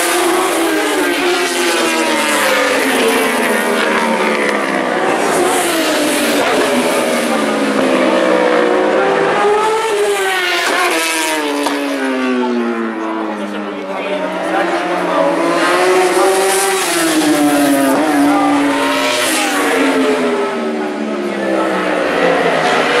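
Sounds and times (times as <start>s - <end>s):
motorcycle engines racing past: 0.0s - 23.0s.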